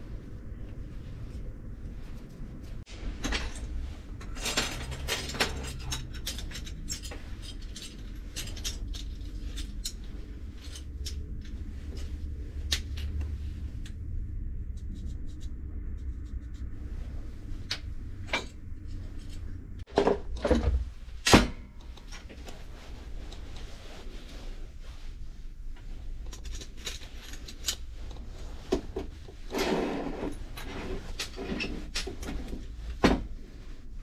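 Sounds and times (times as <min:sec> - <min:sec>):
steady low hum: 0:00.0 - 0:34.0
metal parts clattering on workbench: 0:03.2 - 0:10.0.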